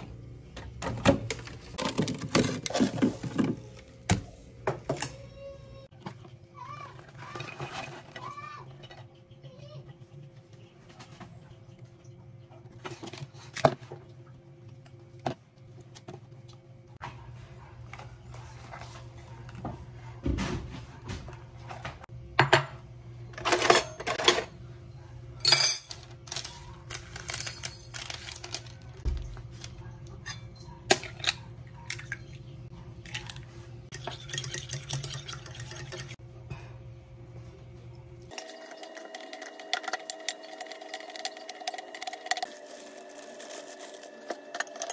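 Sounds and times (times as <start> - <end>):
bowl and cutlery clinking: 25.4 - 26.0
fork beating egg in bowl: 33.9 - 36.2.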